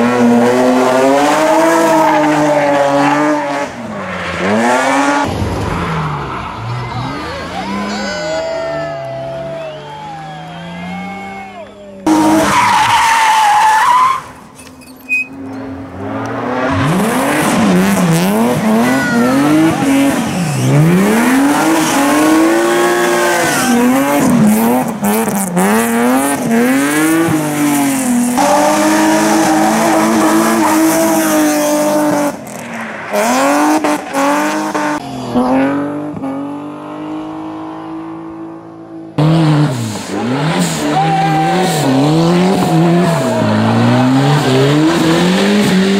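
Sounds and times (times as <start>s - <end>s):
car engines revving hard: 0.0s - 8.4s, 9.0s - 14.4s, 15.4s - 45.9s
tyres squealing: 11.7s - 15.4s.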